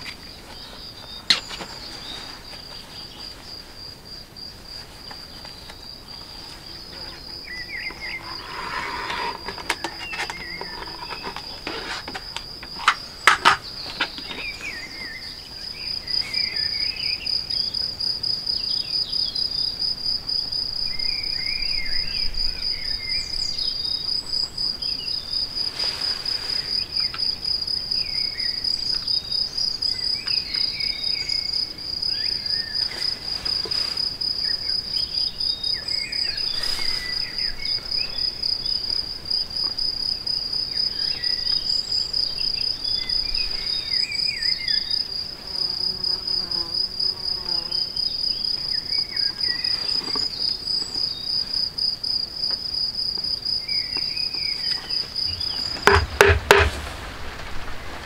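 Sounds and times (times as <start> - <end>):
high insect trill: 0.0 - 58.0
sharp knocks: 55.7 - 57.0.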